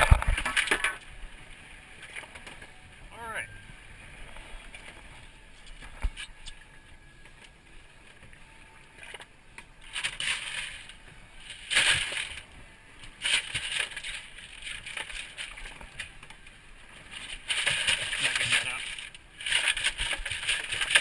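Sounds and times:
crushed ice crunching: 17.1 - 21.0.

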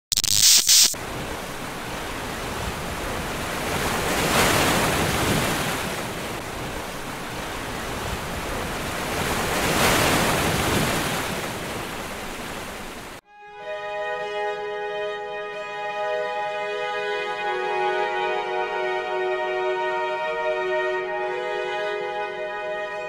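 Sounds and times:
wind: 0.6 - 13.2
ocean surf washing in: 0.9 - 13.2.

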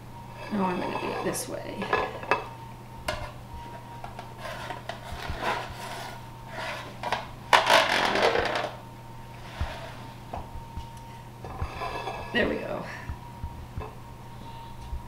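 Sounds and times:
metal spatula scraping baking pan: 0.4 - 2.5, 3.1 - 3.8, 4.4 - 7.2, 11.5 - 12.6.

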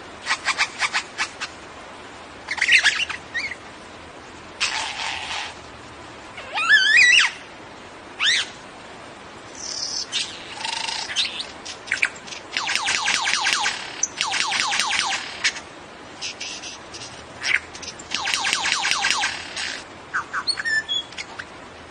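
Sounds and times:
lyrebird warbling and whistling: 2.5 - 3.6, 6.4 - 7.4, 8.2 - 8.6, 9.6 - 15.6, 16.2 - 21.5.

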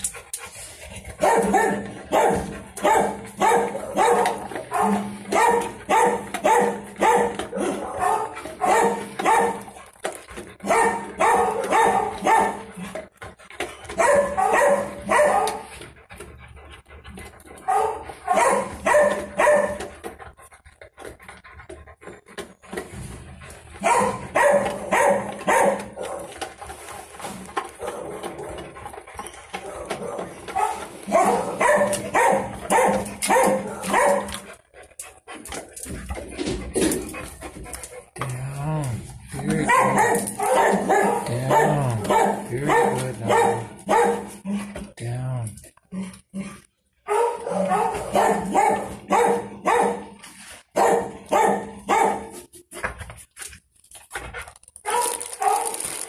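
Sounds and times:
dog barking: 1.2 - 9.7, 10.6 - 12.7, 14.0 - 15.7, 17.7 - 19.9, 23.8 - 26.4, 27.8 - 28.6, 29.6 - 34.4, 39.4 - 44.5, 47.0 - 52.4, 54.8 - 55.8.

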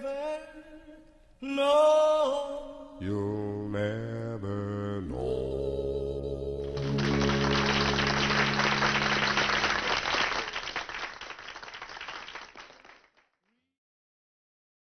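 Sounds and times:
held music chord: 6.0 - 10.4
audience applause: 6.8 - 13.2.

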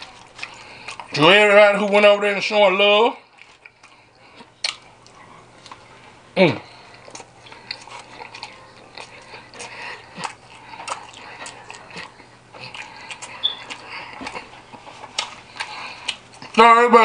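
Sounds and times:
close-up chewing: 0.0 - 2.2, 3.2 - 16.7
lip-smacking and mouth clicks: 3.4 - 5.8, 6.9 - 16.6.

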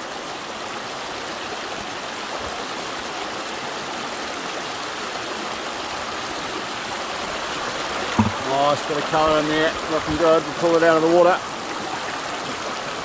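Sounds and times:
water running through sluice box: 0.0 - 13.0.

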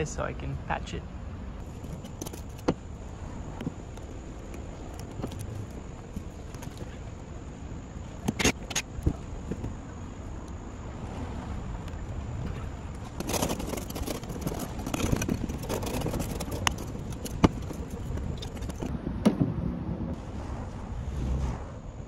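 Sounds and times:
low rumble of road traffic: 0.0 - 22.0
hand scraper scraping metal: 13.1 - 18.9.

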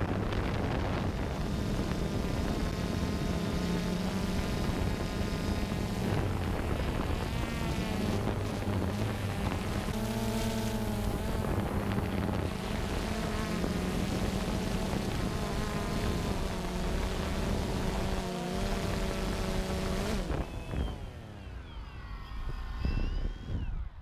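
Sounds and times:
quadcopter propellers buzzing: 0.0 - 24.0.

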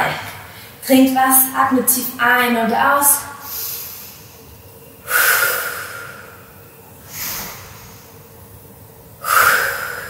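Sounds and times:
woman breathing deeply: 3.4 - 8.4, 9.1 - 10.0.

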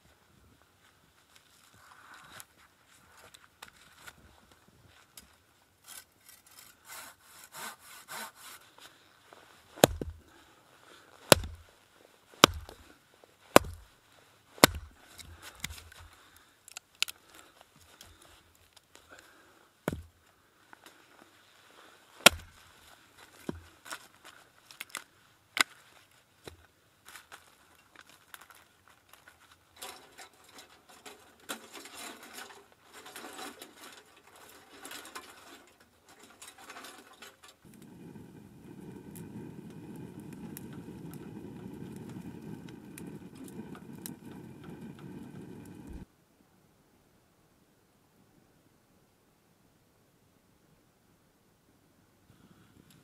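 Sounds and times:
rubbing and scraping wood: 5.8 - 8.8, 9.7 - 10.3, 11.2 - 11.6, 12.4 - 12.9, 14.6 - 16.1
sawing strokes: 5.9 - 8.8
knocks into wood: 9.8 - 10.2, 11.3 - 11.6, 12.4 - 12.8, 13.6 - 13.8, 14.6 - 14.9.

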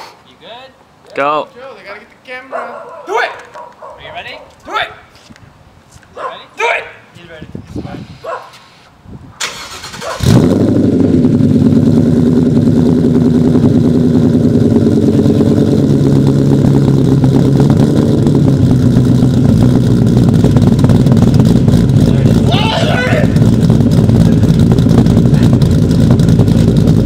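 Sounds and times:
car engine starting and idling: 9.4 - 27.0.

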